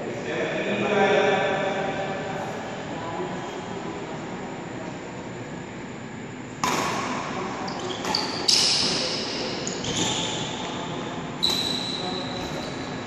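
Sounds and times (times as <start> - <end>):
racket hitting shuttlecock: 6.6 - 7.3.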